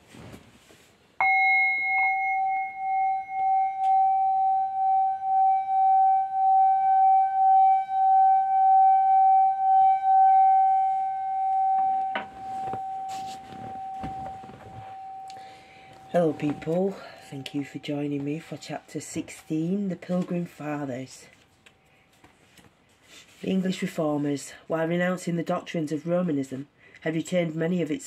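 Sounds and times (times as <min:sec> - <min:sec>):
metal singing bowl ringing: 0:01.2 - 0:20.1.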